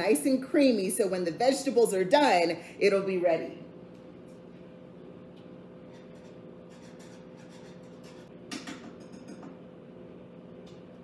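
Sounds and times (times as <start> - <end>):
steady hum: 0.0 - 11.0
whisk scraping in a pan: 5.8 - 8.4.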